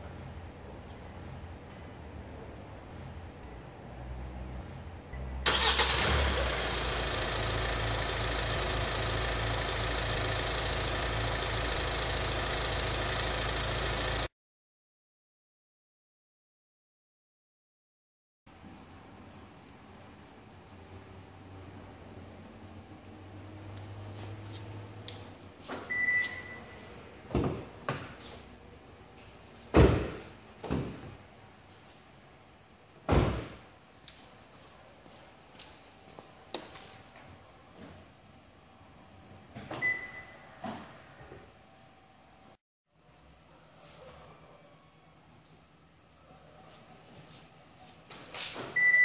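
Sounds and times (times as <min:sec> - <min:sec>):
car engine starting and idling: 0:05.1 - 0:14.3.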